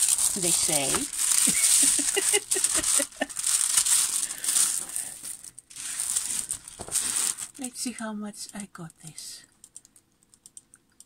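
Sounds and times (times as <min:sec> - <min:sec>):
plastic packaging crinkling: 0:00.0 - 0:07.8.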